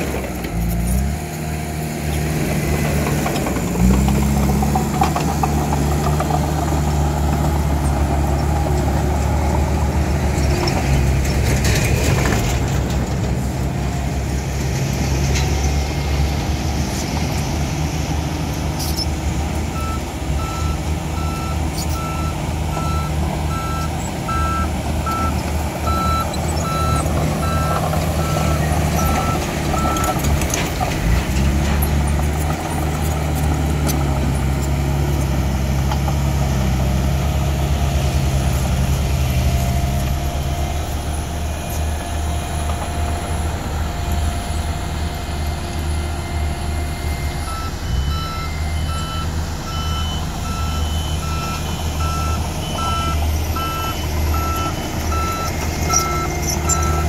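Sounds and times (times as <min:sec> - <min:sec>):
diesel engine under load: 0:00.0 - 0:57.0
reversing alarm beeping: 0:19.7 - 0:30.2, 0:40.2 - 0:57.0.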